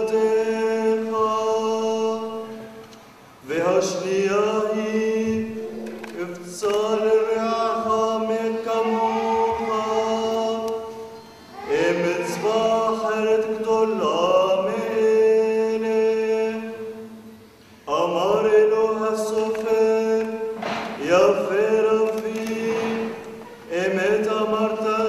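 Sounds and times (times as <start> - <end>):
man chanting: 3.4 - 11.0, 11.6 - 17.1, 17.9 - 25.0.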